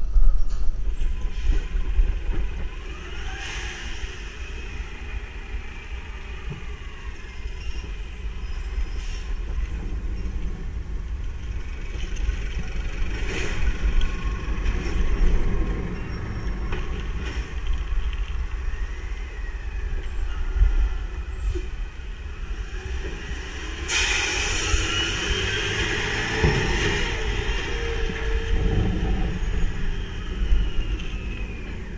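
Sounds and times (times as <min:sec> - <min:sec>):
garbage truck engine rumbling: 0:00.1 - 0:31.9
air hisses: 0:23.9 - 0:25.1.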